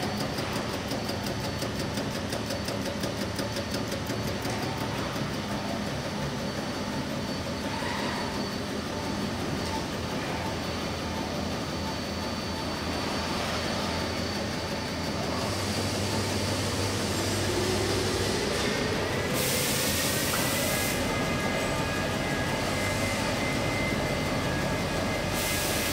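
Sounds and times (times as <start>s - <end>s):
machine drum whirring: 0.0s - 25.9s
rising whine: 4.5s - 25.9s
burst of hiss: 15.4s - 21.2s, 25.3s - 25.9s.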